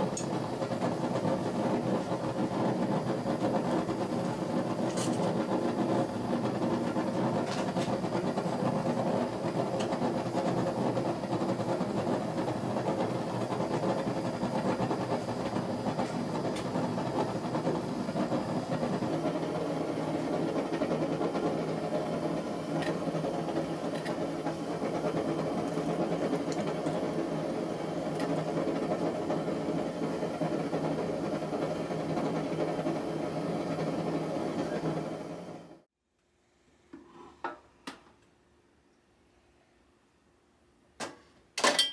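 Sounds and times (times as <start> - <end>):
forge burner hissing: 0.0 - 35.9.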